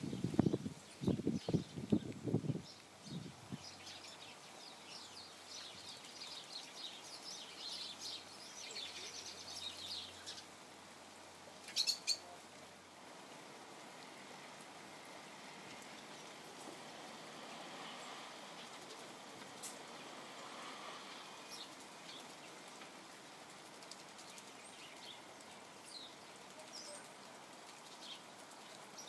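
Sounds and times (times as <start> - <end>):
birds chirping: 0.0 - 10.6, 11.6 - 12.3, 21.2 - 22.8, 23.8 - 29.0.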